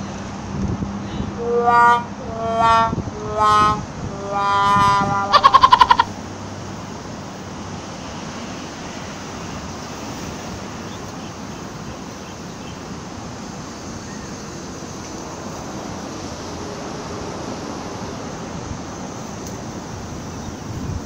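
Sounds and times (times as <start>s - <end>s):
wind hiss on microphone: 0.3s - 1.4s, 6.2s - 21.0s.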